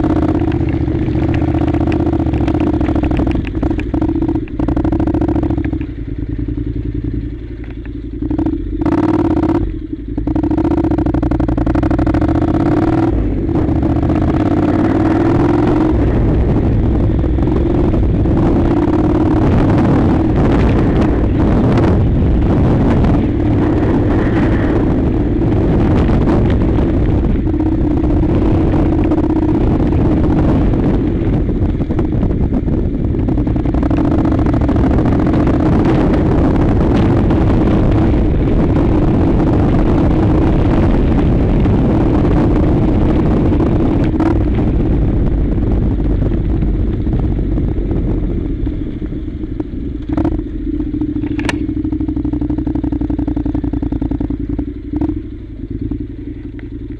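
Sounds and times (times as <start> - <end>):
motorcycle engine running: 0.0 - 56.9
tyre and road rumble: 0.0 - 56.9
stones clicking: 0.4 - 4.9.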